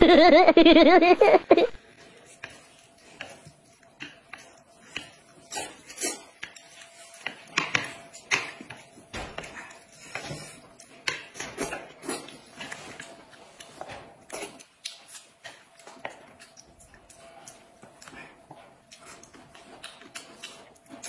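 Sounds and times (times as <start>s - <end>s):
eating smacks and slurps: 11.6s - 21.0s.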